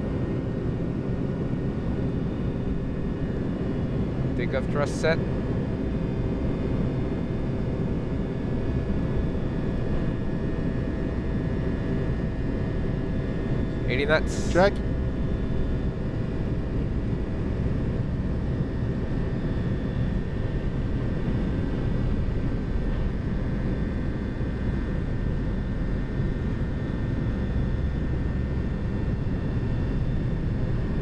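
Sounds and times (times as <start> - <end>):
jet engine rumble: 0.0 - 31.0
thin steady engine whine: 0.0 - 31.0.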